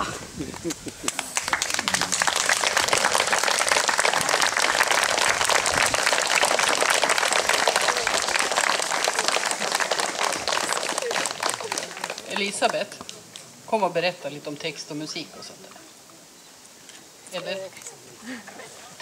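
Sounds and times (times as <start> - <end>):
crowd applauding: 0.7 - 13.1.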